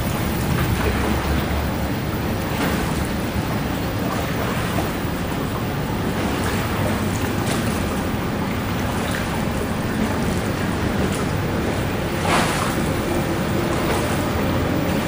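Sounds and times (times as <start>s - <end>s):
water washing and splashing: 0.0s - 15.0s
wind buffeting microphone: 0.0s - 15.0s.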